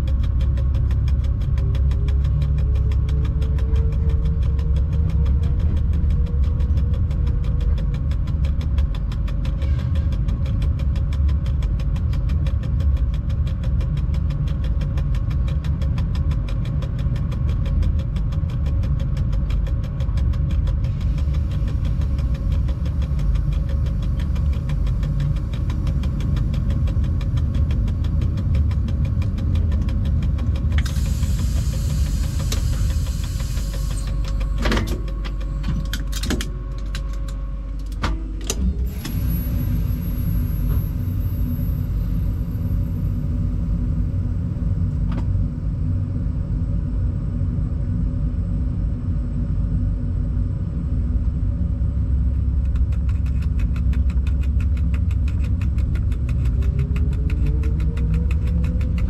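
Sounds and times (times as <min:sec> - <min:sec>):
locomotive rumble: 0:00.0 - 0:59.0
hiss: 0:30.8 - 0:34.1.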